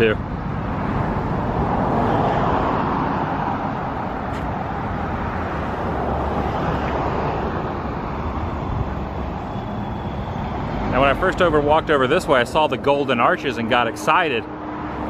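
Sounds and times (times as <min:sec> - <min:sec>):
road traffic passing: 0:00.0 - 0:15.0.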